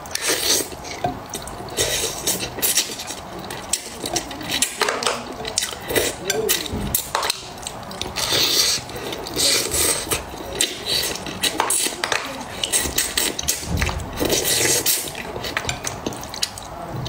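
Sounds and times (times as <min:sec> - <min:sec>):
slurping and sucking fish: 0:00.0 - 0:16.9.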